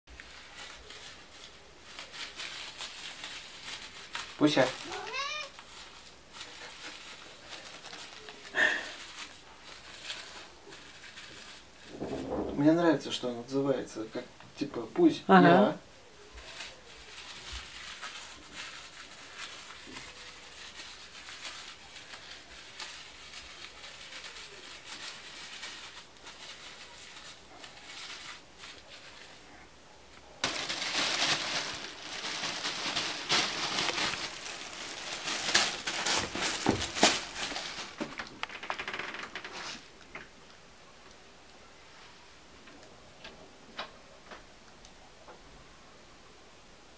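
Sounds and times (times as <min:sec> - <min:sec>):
plastic bag crinkling: 0:00.1 - 0:13.0, 0:16.3 - 0:29.6, 0:30.3 - 0:40.1.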